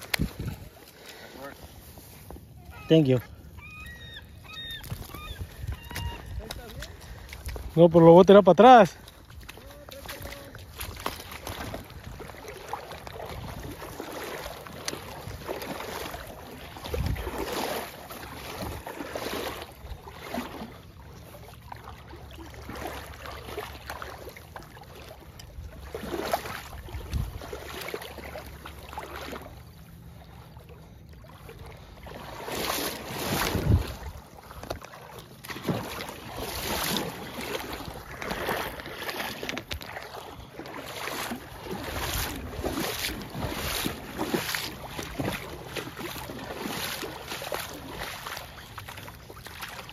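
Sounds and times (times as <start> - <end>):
wind buffeting microphone: 0.0 - 0.8, 4.5 - 7.8, 26.8 - 27.5, 33.2 - 34.3.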